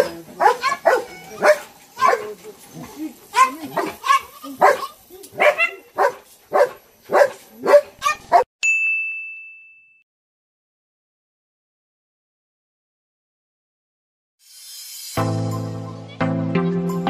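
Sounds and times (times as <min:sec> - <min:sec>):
dog barking: 0:00.0 - 0:02.3, 0:03.4 - 0:08.5.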